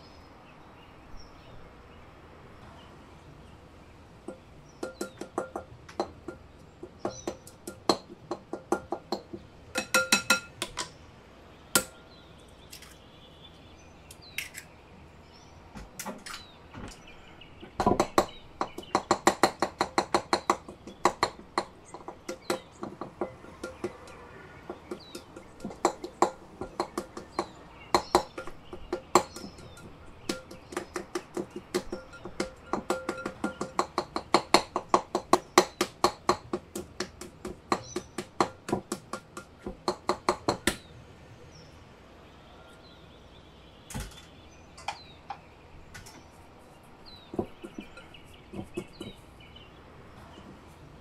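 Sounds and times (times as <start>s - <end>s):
faint bird chirps: 40.8s - 50.5s.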